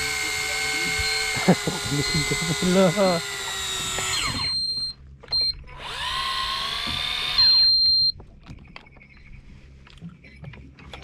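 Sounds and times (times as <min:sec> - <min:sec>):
electric fishing reel motor whine: 0:00.0 - 0:05.0, 0:05.6 - 0:08.0
loud high beep: 0:04.3 - 0:05.6.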